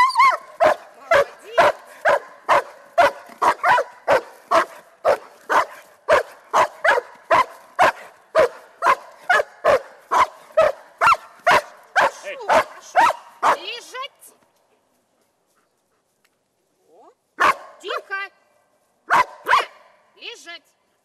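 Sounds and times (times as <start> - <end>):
dog barking rapidly: 0.2 - 13.8, 17.4 - 17.8, 19.1 - 19.8.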